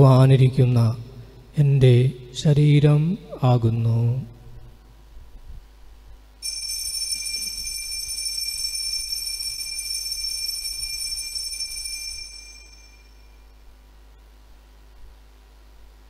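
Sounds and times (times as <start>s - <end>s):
high altar bells ringing: 6.4s - 13.6s.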